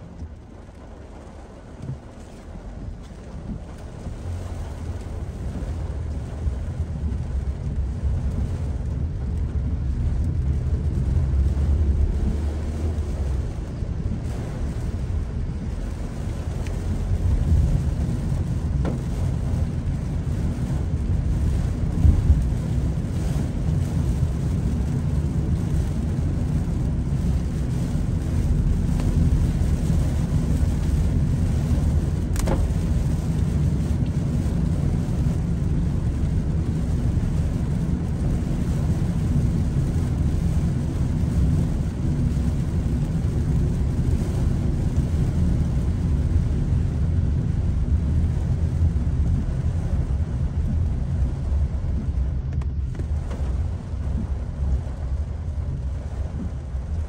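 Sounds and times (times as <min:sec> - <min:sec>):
heavy rain on car: 0:00.0 - 0:57.0
tyre and road noise: 0:00.0 - 0:57.0.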